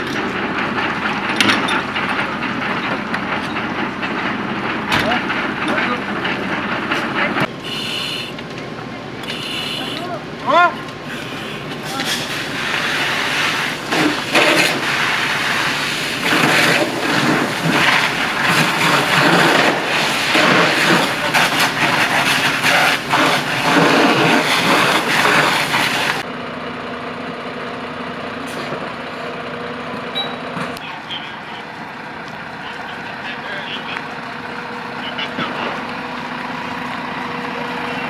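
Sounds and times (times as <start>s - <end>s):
fire engines idling: 0.0s - 38.0s
water spray hissing: 7.6s - 8.4s, 9.2s - 10.1s, 11.1s - 17.8s
fire crackling and popping: 10.8s - 26.2s, 30.7s - 38.0s.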